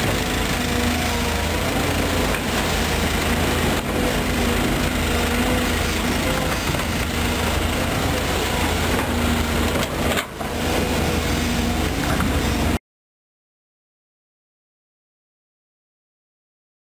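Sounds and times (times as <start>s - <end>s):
excavator diesel engine: 0.0s - 12.8s.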